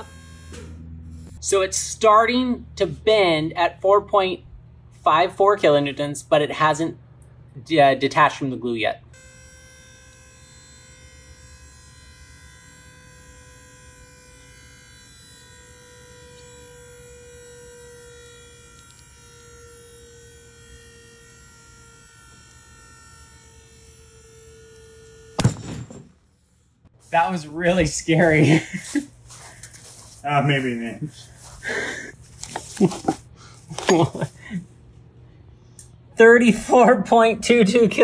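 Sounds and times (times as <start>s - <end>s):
hydraulic pump humming: 0.0s - 1.4s
loud bang of bolt breaking: 25.4s - 26.2s.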